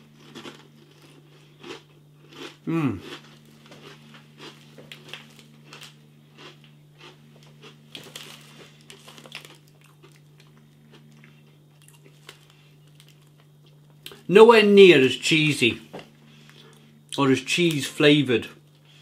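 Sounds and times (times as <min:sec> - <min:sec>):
person crunching and chewing snacks: 0:00.0 - 0:14.3
faint low hum: 0:00.0 - 0:19.0.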